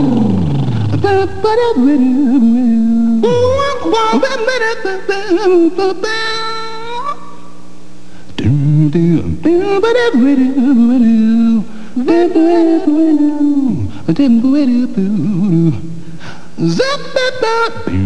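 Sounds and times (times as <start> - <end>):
faint steady hum: 0.0 - 18.0
wordless voice in wavering notes: 3.2 - 5.4.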